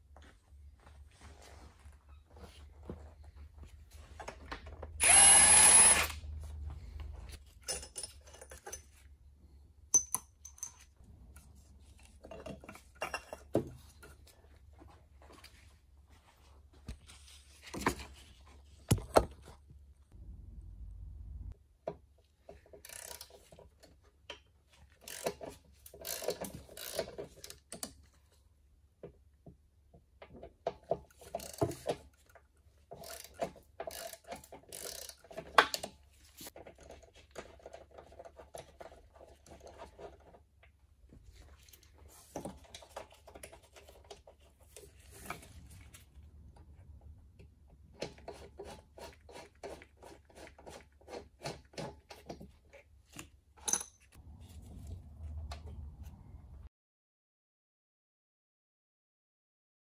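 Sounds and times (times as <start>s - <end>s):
tools clinking and knocking: 7.5s - 9.1s, 9.9s - 11.0s, 12.2s - 14.2s
low steady hum: 20.0s - 21.6s.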